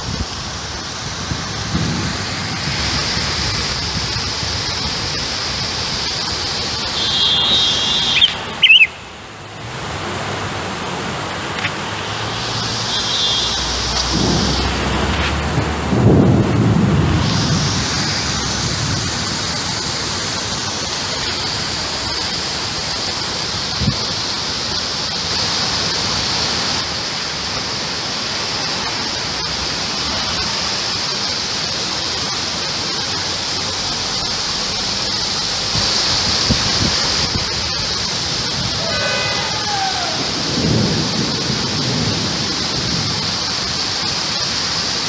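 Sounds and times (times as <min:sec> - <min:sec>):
thunder rolling: 0:00.0 - 0:06.4, 0:13.8 - 0:20.8, 0:35.8 - 0:44.3
heavy rain falling: 0:00.0 - 0:45.0.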